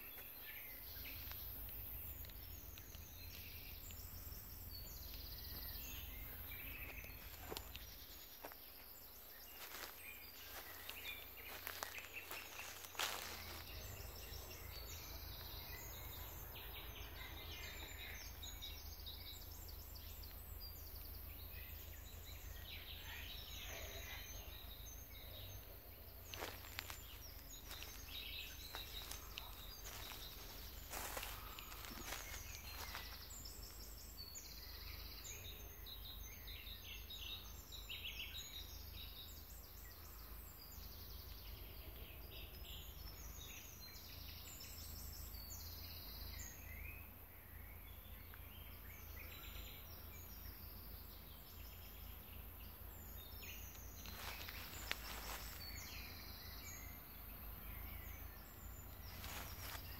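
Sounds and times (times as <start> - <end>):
birds chirping: 0.0 - 59.9
low steady rumble: 0.8 - 8.4.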